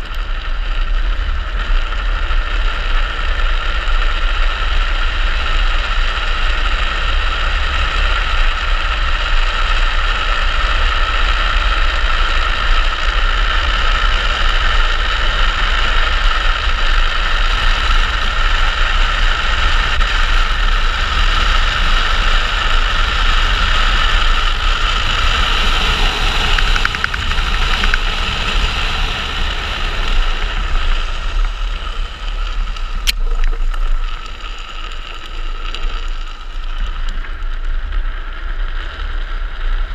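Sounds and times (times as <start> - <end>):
wheels rolling on asphalt: 0.0 - 39.9
wind buffeting microphone: 14.5 - 35.0.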